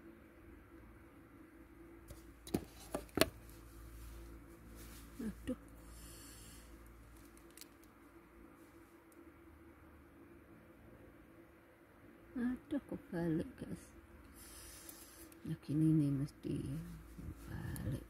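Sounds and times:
low steady hum: 0.0s - 18.0s
phone handling clicks and taps: 2.1s - 3.4s.

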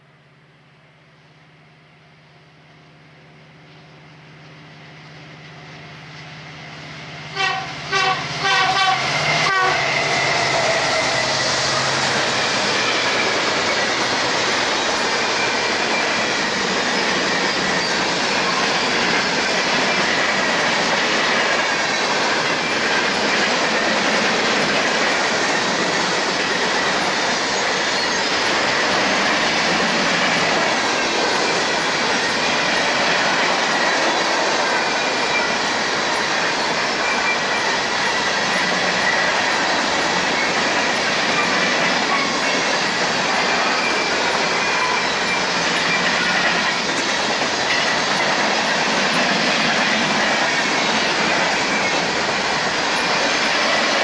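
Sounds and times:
steel train wheels rumbling on rail: 2.8s - 54.0s
high wheel squeal: 7.7s - 20.7s, 25.5s - 33.0s, 34.8s - 54.0s.

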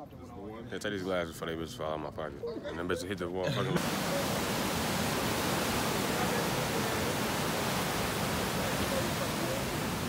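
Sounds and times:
ocean surf breaking: 3.8s - 10.0s.

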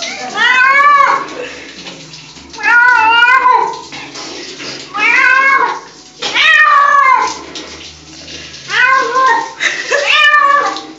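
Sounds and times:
cat yowling: 0.0s - 1.3s, 2.6s - 3.8s, 4.9s - 7.4s, 8.7s - 10.9s.

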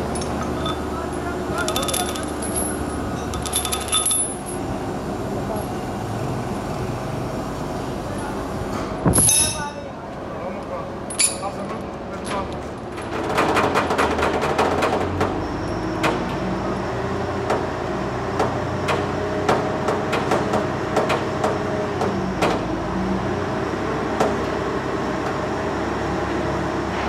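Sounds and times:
metal knocks and clinks: 0.1s - 0.9s, 1.5s - 4.6s, 9.2s - 9.8s, 11.1s - 11.6s.

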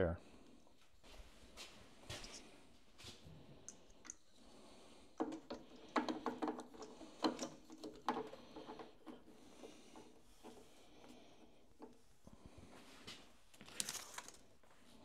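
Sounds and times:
wiring parts clicking and rattling: 5.1s - 12.0s.

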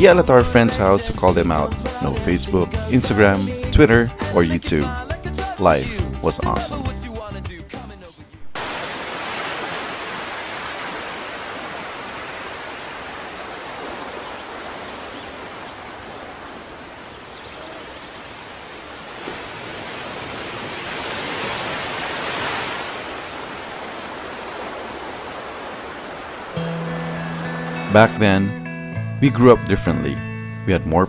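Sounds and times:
ocean surf breaking on beach: 8.6s - 27.0s.

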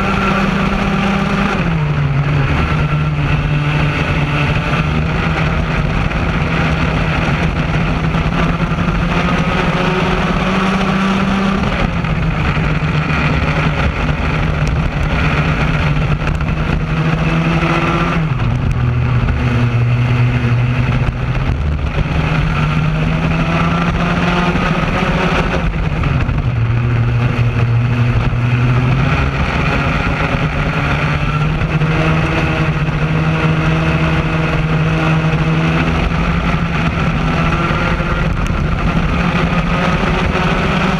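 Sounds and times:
kart engine running hard: 0.0s - 40.9s.

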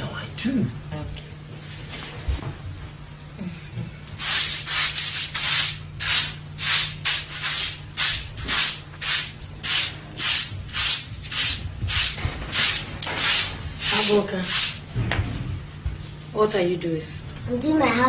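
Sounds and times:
hand broom sweeping floor: 4.2s - 15.0s.

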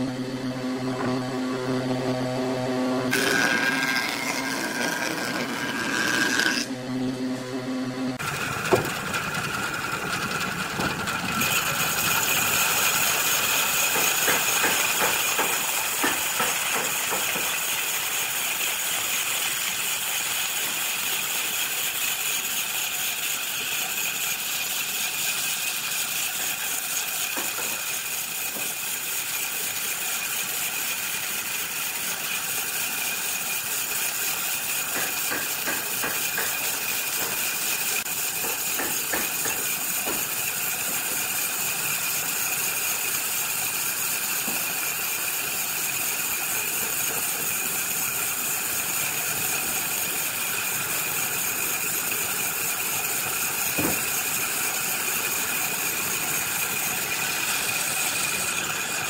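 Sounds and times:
electric motor humming: 0.0s - 20.0s
scraping on wood: 3.1s - 6.7s
power tool grinding hiss: 3.1s - 6.8s, 8.2s - 59.0s.

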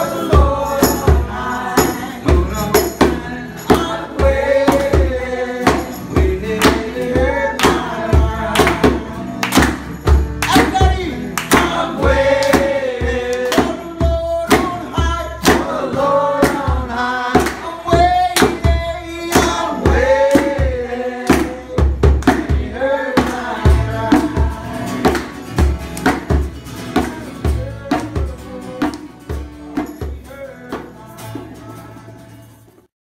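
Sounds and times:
group singing: 0.0s - 9.8s, 11.0s - 26.2s
rhythmic clapping: 0.0s - 31.4s
strummed acoustic guitar: 0.0s - 32.9s.

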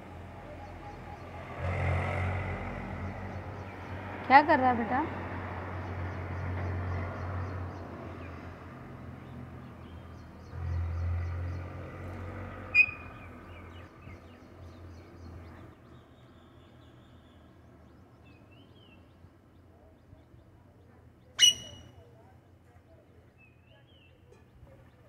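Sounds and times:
parakeet call: 12.7s - 13.3s, 21.4s - 22.0s.

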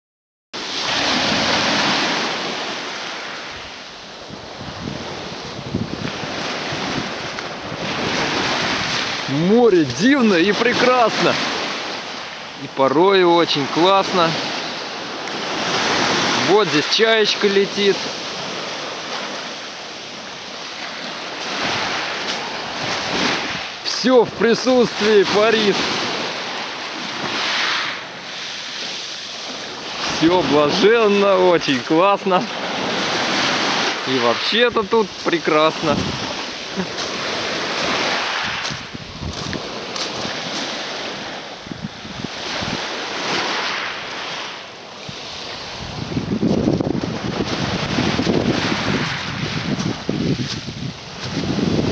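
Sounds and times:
small waves washing ashore: 0.6s - 51.9s
wind on microphone: 3.4s - 10.8s, 17.8s - 24.4s, 32.6s - 44.2s, 45.0s - 51.9s.

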